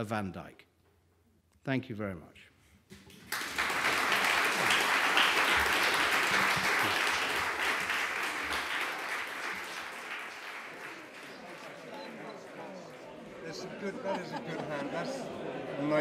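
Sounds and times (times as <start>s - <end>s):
audience applauding: 3.0s - 15.4s.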